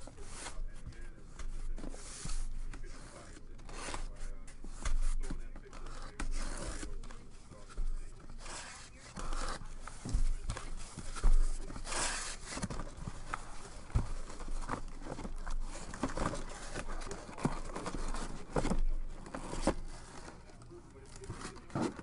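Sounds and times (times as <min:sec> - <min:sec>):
cardboard scraping and tape tearing: 0:00.0 - 0:22.0.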